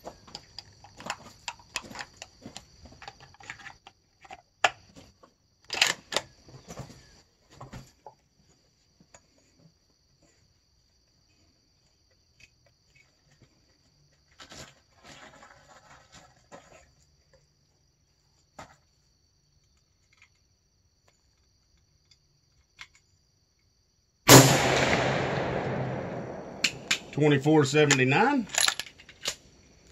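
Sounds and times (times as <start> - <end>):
rifle shot with echo: 24.3 - 28.4.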